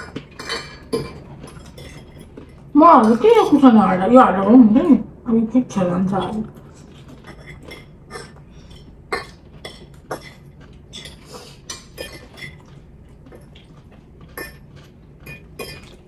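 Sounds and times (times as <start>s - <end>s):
forks clinking on ceramic plates: 0.0s - 3.6s, 7.2s - 8.9s, 9.6s - 12.8s.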